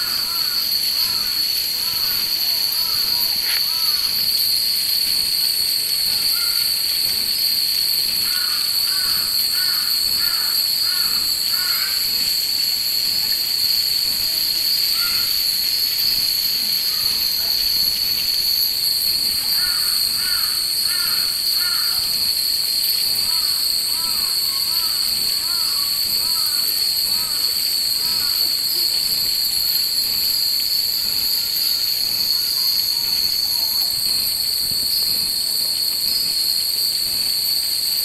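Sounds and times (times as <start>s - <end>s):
crow cawing: 0.0s - 2.1s, 6.3s - 6.6s, 8.3s - 12.1s, 15.0s - 15.4s, 19.6s - 22.0s, 23.3s - 27.4s
cicadas droning: 0.0s - 38.0s.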